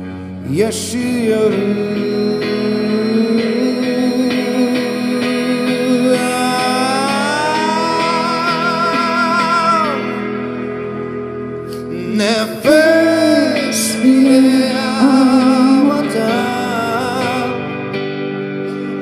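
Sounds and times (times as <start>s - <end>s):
guitar: 0.0s - 19.0s
woman and man singing duet: 12.0s - 17.6s.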